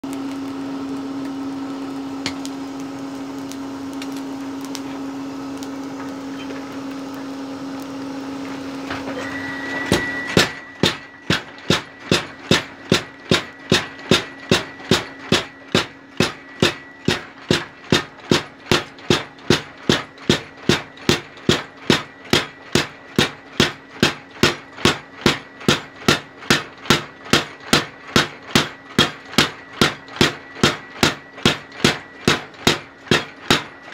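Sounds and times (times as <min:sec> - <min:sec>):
forge air blower humming: 0:00.0 - 0:33.9
power hammer hammering hot steel: 0:00.0 - 0:33.9
power hammer motor whine: 0:00.1 - 0:19.4.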